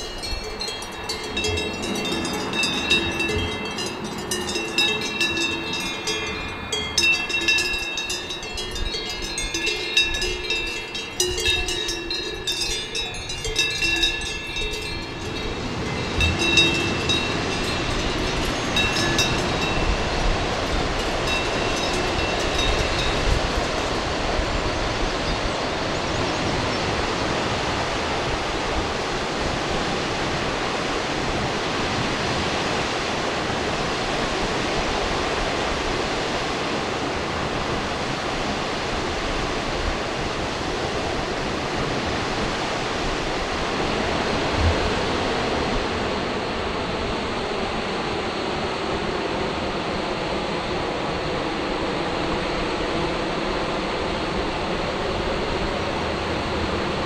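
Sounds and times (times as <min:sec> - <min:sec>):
ringing bell-like tones: 0:00.0 - 0:26.9.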